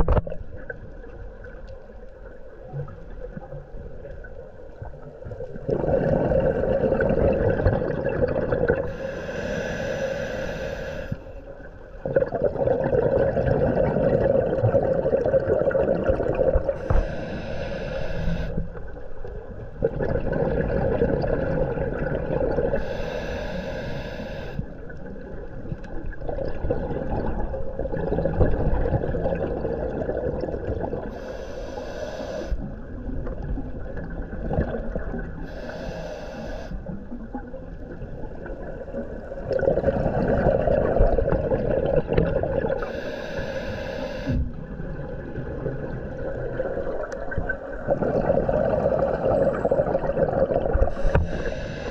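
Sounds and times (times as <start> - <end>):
underwater bubbles rumbling: 0.0 - 9.1, 11.5 - 17.2, 18.3 - 22.9, 24.7 - 31.2, 32.6 - 35.8, 36.8 - 43.0, 44.4 - 51.6
diver breathing through regulator: 8.8 - 11.4, 16.7 - 18.8, 22.7 - 24.8, 31.1 - 32.7, 35.4 - 37.0, 42.8 - 44.6, 50.8 - 51.9.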